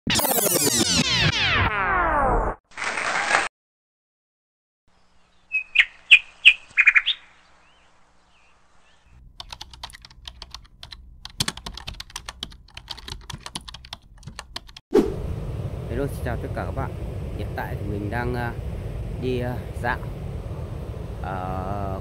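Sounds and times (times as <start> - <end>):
rapid irregular clicking: 9.4 - 14.8.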